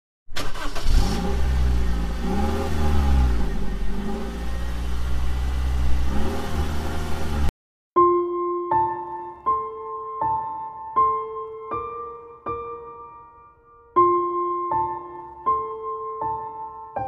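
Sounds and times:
car engine revving: 0.4s - 7.5s
piano notes: 8.0s - 17.0s.

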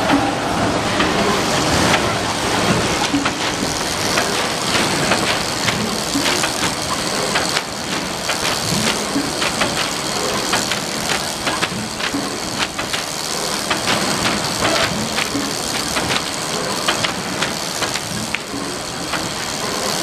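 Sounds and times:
machine clicks and clacks: 0.0s - 20.0s
packaging machinery running: 0.0s - 20.0s.

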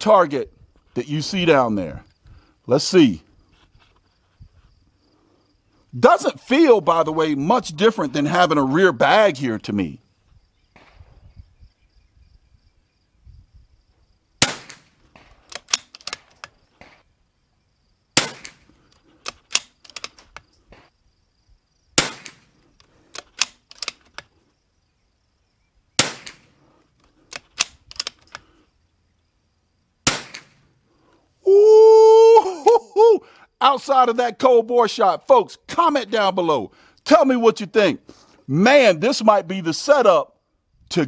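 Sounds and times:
rifle shots: 14.4s - 17.1s, 18.2s - 20.8s, 22.0s - 22.6s, 26.0s - 26.6s, 30.0s - 30.7s
rifle bolt metallic clicks: 14.5s - 17.0s, 18.2s - 20.8s, 22.0s - 24.3s, 26.0s - 28.5s.

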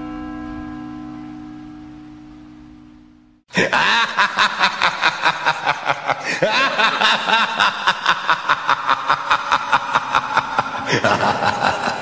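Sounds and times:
held electronic note: 0.0s - 3.4s.

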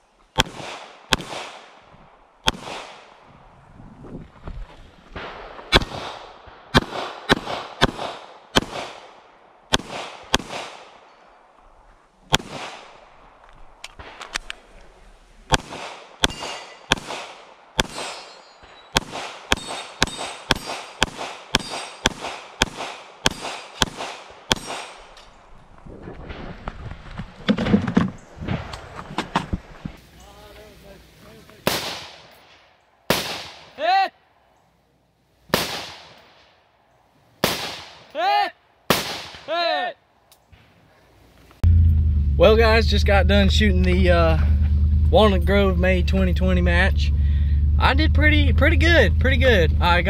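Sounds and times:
handgun shots: 15.5s - 18.3s, 18.9s - 25.2s
metallic ring of steel targets: 16.2s - 17.0s, 17.9s - 22.1s, 24.5s - 25.4s.

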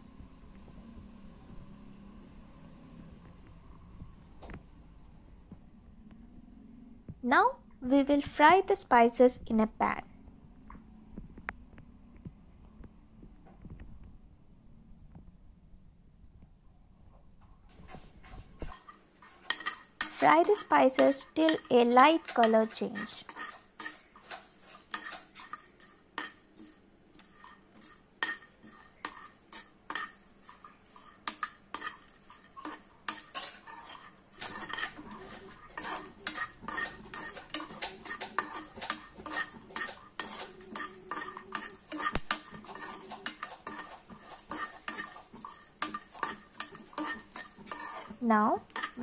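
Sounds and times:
metal spoon scraping a pan: 17.7s - 49.0s
spices dry-frying in a metal pan: 17.7s - 49.0s.

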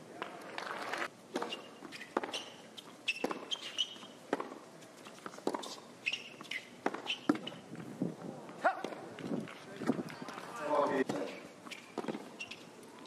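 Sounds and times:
shoes squeaking on court: 0.6s - 7.9s, 8.6s - 13.0s
racket striking tennis ball: 1.3s - 4.6s, 5.2s - 7.6s, 11.0s - 12.4s
tennis ball bouncing: 1.3s - 7.6s, 11.0s - 12.6s.

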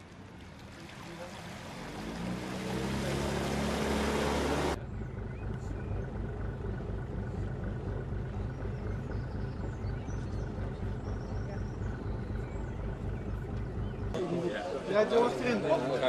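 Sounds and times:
water rushing: 0.0s - 4.8s
outboard motor running under load: 0.6s - 14.2s
motorboat engine low throb: 1.8s - 14.2s.

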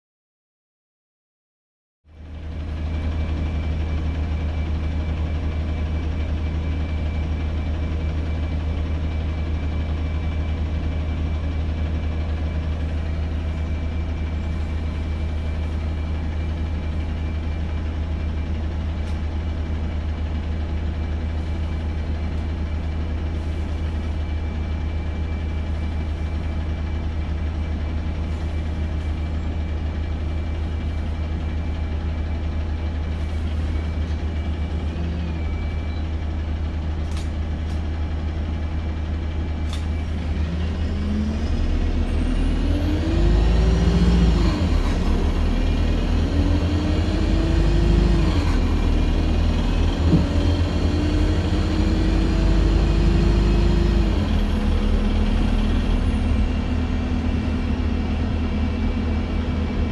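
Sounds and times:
bus diesel engine idling: 2.1s - 59.9s.

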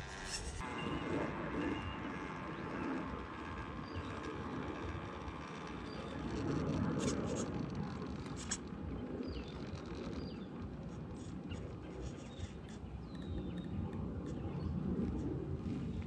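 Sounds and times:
toy car motor running: 1.6s - 10.4s.

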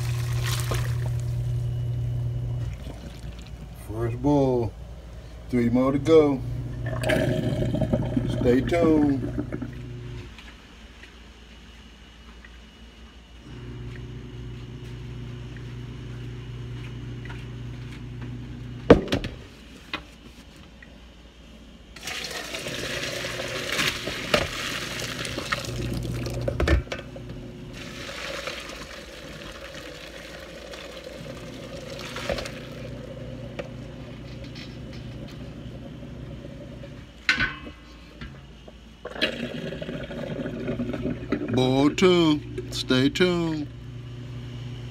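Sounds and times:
hot water pouring into a sink: 0.0s - 1.4s, 22.0s - 26.7s, 27.7s - 33.6s, 39.0s - 41.8s.

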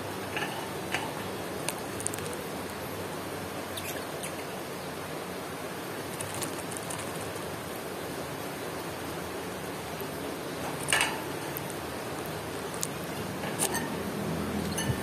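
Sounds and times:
birds moving among leaves: 0.0s - 2.8s, 5.6s - 15.0s
steady hiss: 0.0s - 15.0s
birds chirping: 3.6s - 5.1s, 10.0s - 15.0s.

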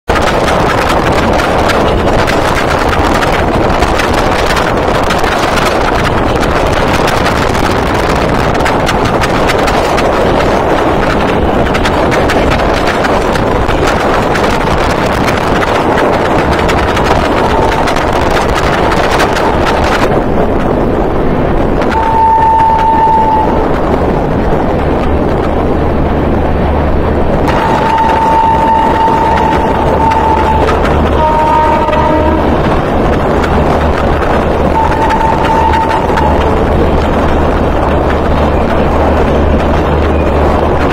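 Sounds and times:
rushing wind: 0.0s - 40.9s
train running at speed: 0.0s - 40.9s
wind on microphone: 0.1s - 40.9s
shrill locomotive horn: 21.9s - 23.8s, 27.5s - 32.7s, 34.7s - 36.7s.

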